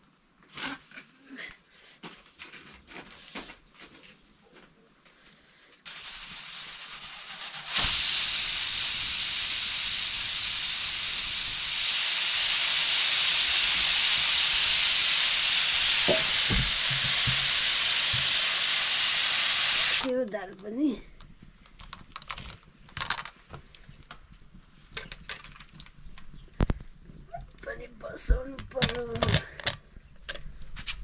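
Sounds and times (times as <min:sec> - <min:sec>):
steam hissing from pressure cooker: 0:05.8 - 0:20.1.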